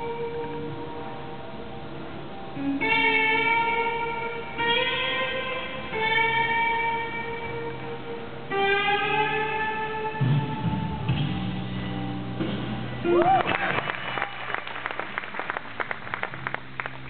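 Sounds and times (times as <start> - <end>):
slow melody over sound system: 0.0 - 17.0.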